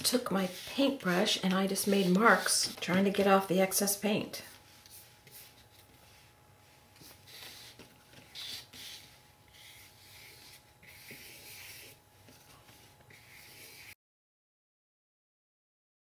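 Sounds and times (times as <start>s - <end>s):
paintbrush swishing on paper: 0.0s - 2.8s, 4.4s - 14.0s.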